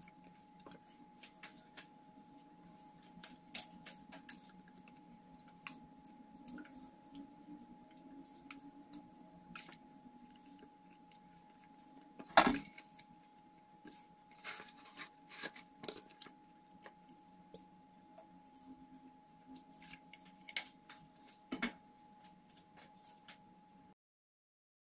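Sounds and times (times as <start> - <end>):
faint steady hum: 0.0 - 24.0
spatula handling fish in plastic bowl: 13.8 - 17.7.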